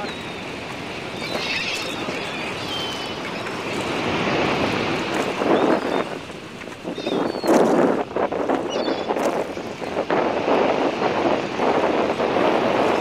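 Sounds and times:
wind on microphone: 0.0 - 13.0
short high squeaks: 1.2 - 3.5.

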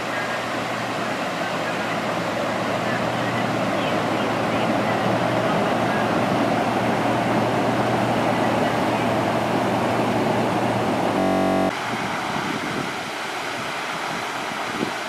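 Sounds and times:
low steady hum: 11.0 - 11.7
brief buzzing tone: 11.1 - 11.7.

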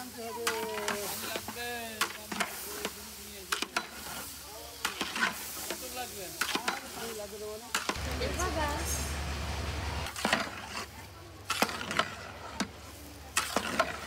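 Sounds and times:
rice sizzling: 0.0 - 14.0
metal spatula scraping a pot: 0.8 - 8.0, 11.5 - 12.7, 13.4 - 14.0.

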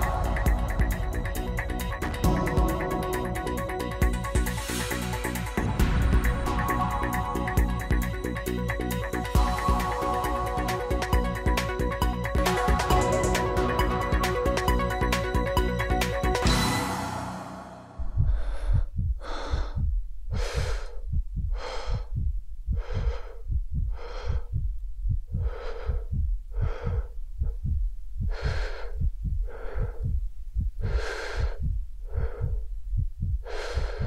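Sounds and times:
person breathing hard: 0.0 - 11.4, 18.0 - 34.0
short low thumps: 17.9 - 34.0.

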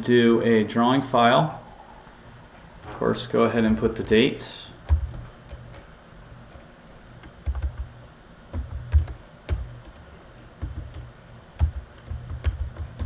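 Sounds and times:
typing on computer keyboard: 7.2 - 7.9, 8.6 - 10.0, 10.6 - 13.0.

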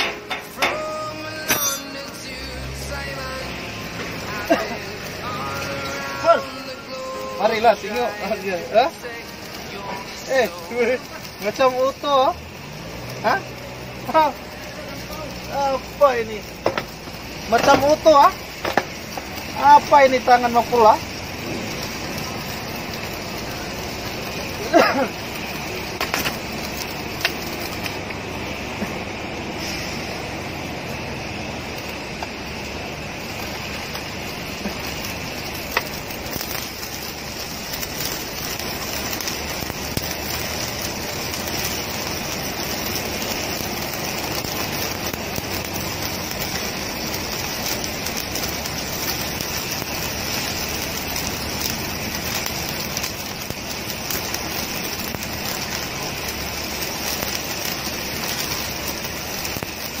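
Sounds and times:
welding arc crackling: 0.0 - 60.0.

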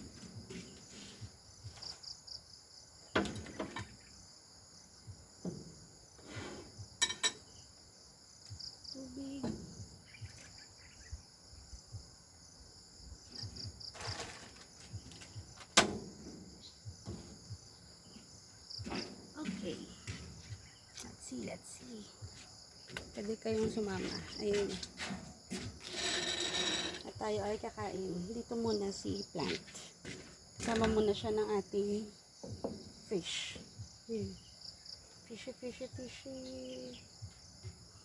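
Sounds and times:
crickets and insects chirping: 0.0 - 38.0
knocks and clinks on table: 7.0 - 7.5.

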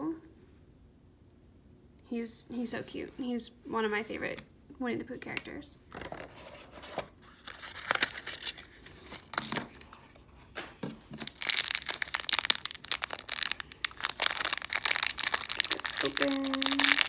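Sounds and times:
plastic wrapper crinkling: 7.4 - 9.8, 11.1 - 17.0.

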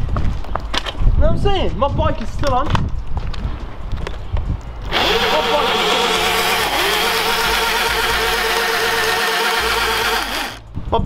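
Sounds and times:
drivetrain and tyre noise: 4.8 - 10.7
electric motor whining: 4.9 - 10.6.

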